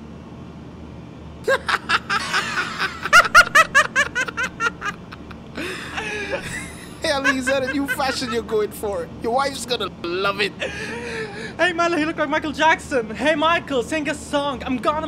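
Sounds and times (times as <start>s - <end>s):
men laughing heartily: 1.4s - 8.6s, 10.6s - 11.6s.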